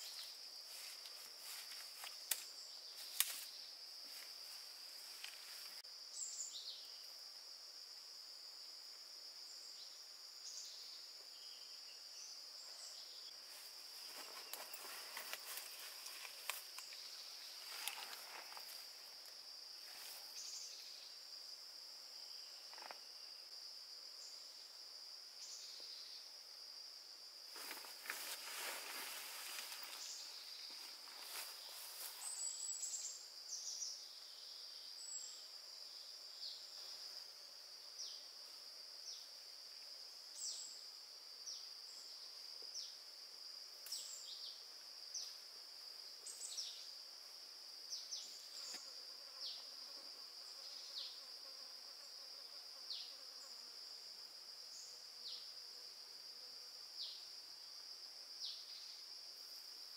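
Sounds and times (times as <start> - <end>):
insects droning: 0.0 - 59.9
rustling: 13.5 - 19.0, 27.5 - 32.5.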